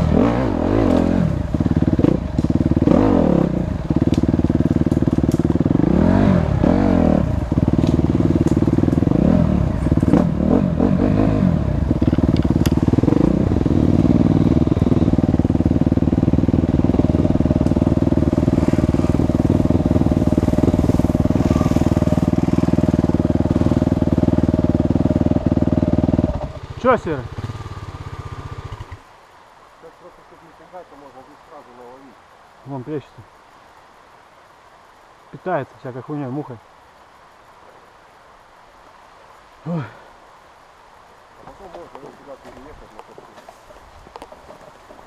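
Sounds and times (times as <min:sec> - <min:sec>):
dirt bike engine revving: 0:00.0 - 0:29.1.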